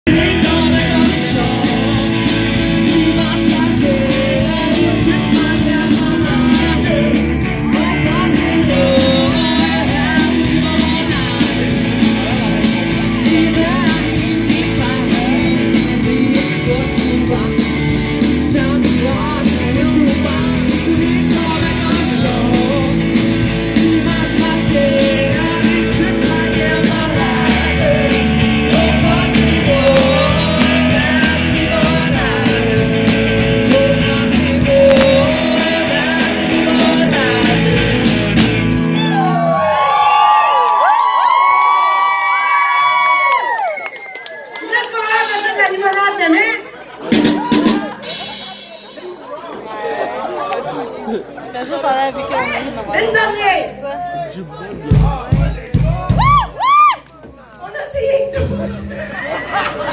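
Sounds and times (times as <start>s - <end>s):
drums: 0.0s - 49.7s, 54.7s - 59.9s
electric guitar: 0.1s - 41.7s
woman singing into a microphone: 2.8s - 11.8s.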